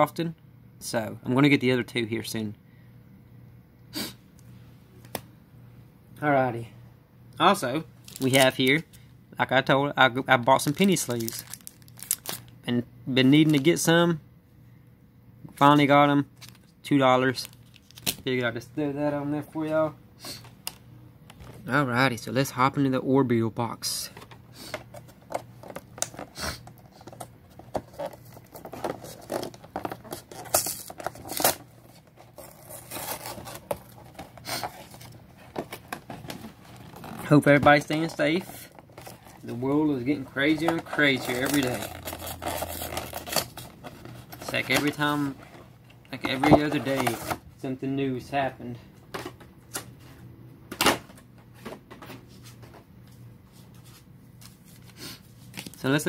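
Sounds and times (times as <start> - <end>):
faint steady hum: 0.0 - 56.0
box packaging tearing and crinkling: 8.1 - 8.6, 10.6 - 12.5, 17.4 - 18.2, 25.4 - 39.4, 40.4 - 45.6.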